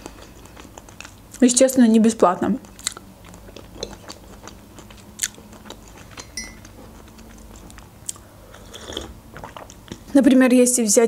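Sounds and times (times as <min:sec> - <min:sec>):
person chewing food: 0:00.0 - 0:01.4, 0:02.6 - 0:10.1
cutlery clinking on crockery: 0:06.2 - 0:06.6.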